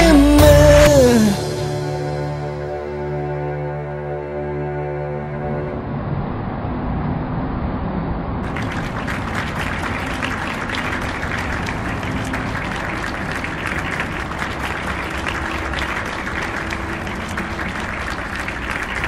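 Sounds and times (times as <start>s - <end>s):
crowd applauding: 8.4s - 19.0s.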